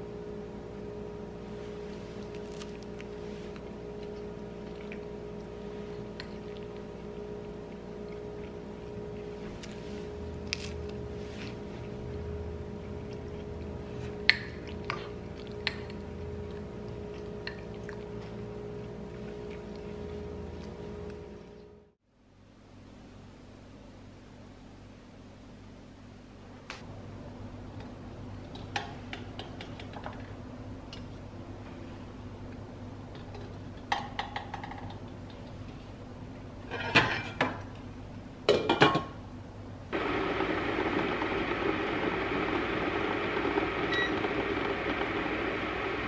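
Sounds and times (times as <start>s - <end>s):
low hum: 39.5s - 46.0s
water boiling in pot: 39.9s - 46.0s.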